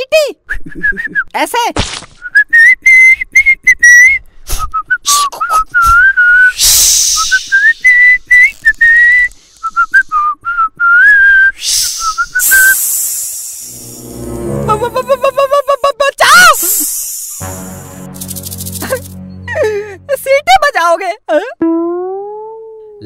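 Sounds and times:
person whistling a tune: 0.5 - 1.3, 2.3 - 13.6
breathy rushes of air: 11.6 - 15.7, 16.5 - 17.6.

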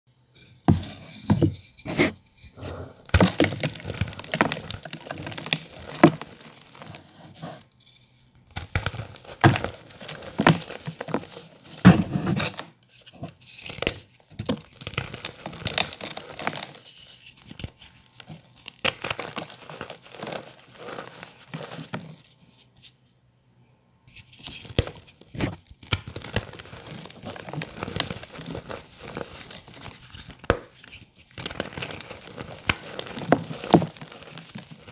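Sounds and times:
gritty crumbling rustle: 3.0 - 7.2, 8.6 - 22.3, 24.6 - 34.9
chalk blocks snapping and crunching: 3.1 - 7.1, 13.4 - 22.2, 24.4 - 34.9.

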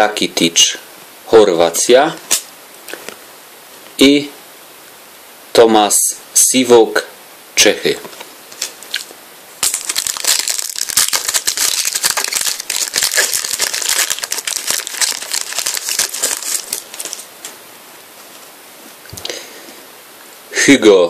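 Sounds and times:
foil packet crinkling and tearing: 8.6 - 17.3.

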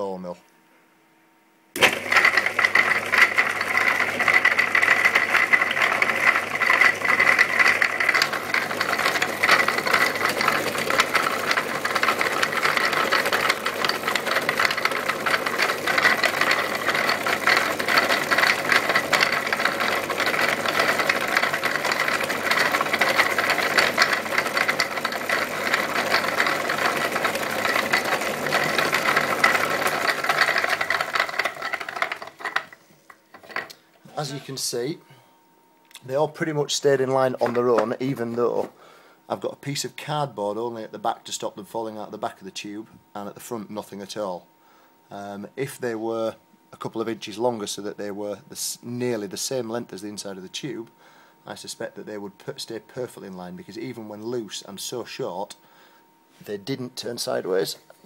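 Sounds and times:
tubes clattering in jar: 1.8 - 34.3
faint steady hum: 31.4 - 58.0.

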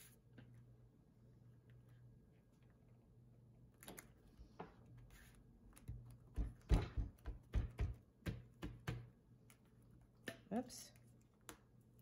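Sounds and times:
hands tapping on paper: 5.8 - 9.2.

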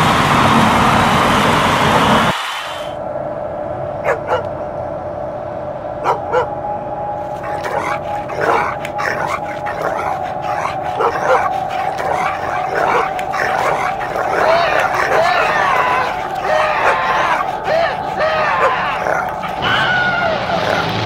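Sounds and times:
steady tone: 3.0 - 20.5
dog barking and yipping: 4.1 - 4.5, 6.0 - 6.5, 7.3 - 21.0.

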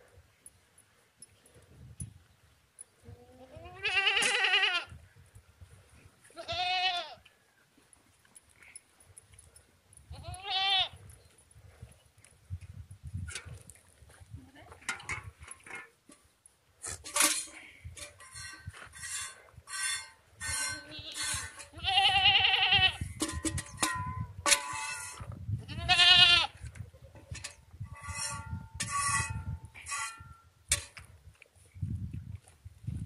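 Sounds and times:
goats bleating: 3.2 - 4.9, 6.4 - 7.2, 10.2 - 11.0, 20.6 - 23.0.

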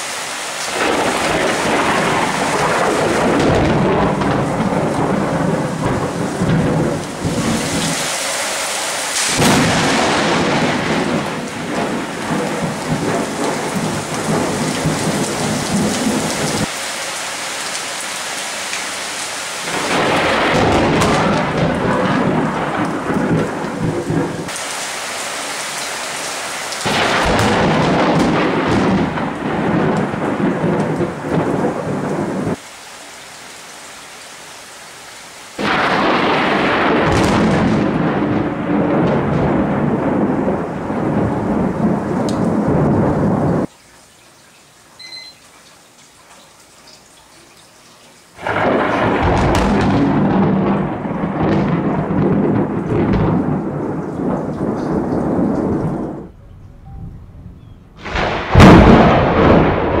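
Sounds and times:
heavy rain: 0.0 - 60.0
rumbling thunder: 0.7 - 8.1, 9.2 - 16.7, 19.6 - 24.6, 26.8 - 32.6, 35.6 - 43.7, 48.4 - 60.0.

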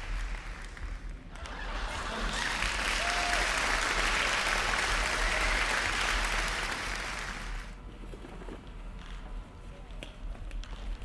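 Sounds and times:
group clapping: 0.0 - 7.8.

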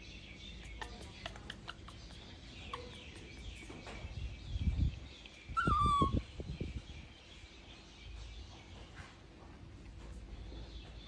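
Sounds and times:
baby monkey high call: 5.4 - 6.4.

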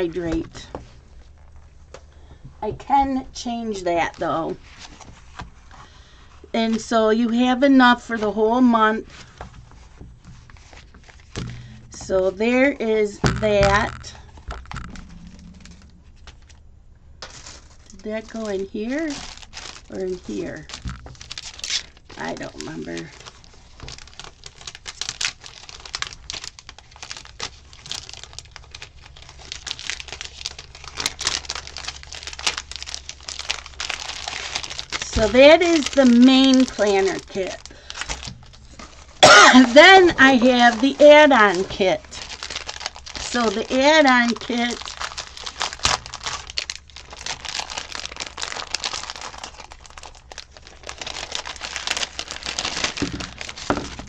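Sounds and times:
cellophane crinkling: 0.0 - 16.6, 17.2 - 54.0.

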